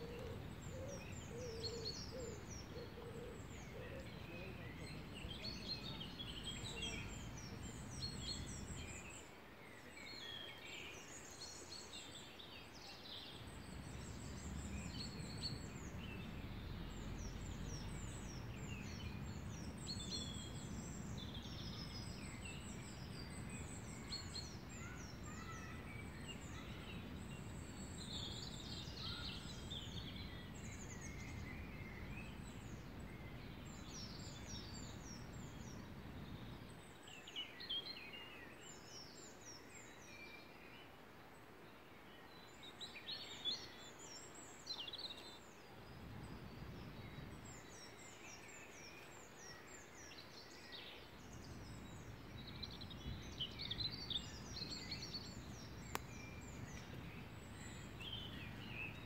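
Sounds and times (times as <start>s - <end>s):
birds singing and chirping: 0.0s - 40.8s, 42.2s - 59.0s
steady low rumble: 26.4s - 36.8s.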